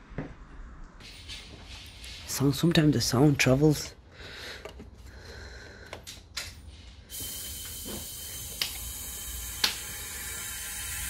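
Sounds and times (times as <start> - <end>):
compressed air hissing: 7.1 - 11.0.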